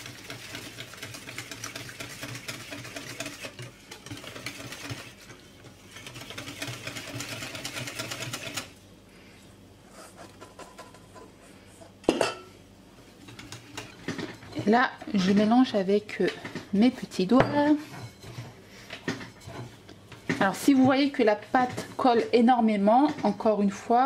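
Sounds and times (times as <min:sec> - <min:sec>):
whisk scraping glass bowl: 0:00.0 - 0:08.7, 0:13.2 - 0:15.6, 0:17.4 - 0:22.3.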